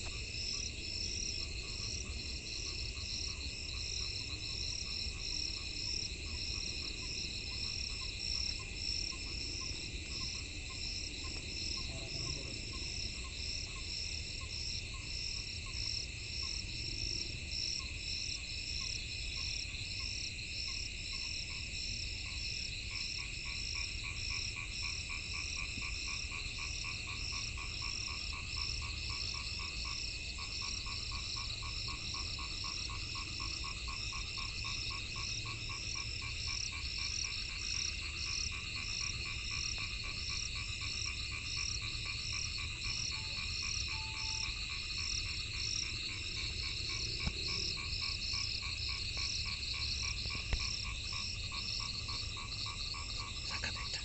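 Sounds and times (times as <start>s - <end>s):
frogs calling in pulses: 22.3s - 54.0s
lower-pitched pulsing frog call: 39.1s - 54.0s.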